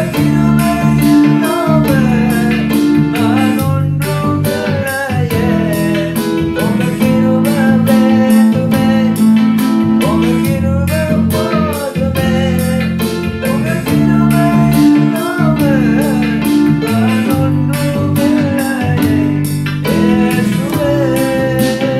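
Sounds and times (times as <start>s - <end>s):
electronic keyboard with beat: 0.0s - 21.9s
man singing worship song: 0.0s - 21.9s.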